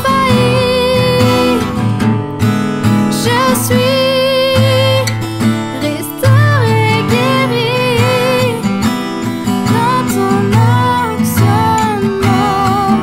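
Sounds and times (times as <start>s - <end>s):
woman singing: 0.0s - 2.0s, 2.9s - 13.0s
strummed acoustic guitar: 0.0s - 13.0s.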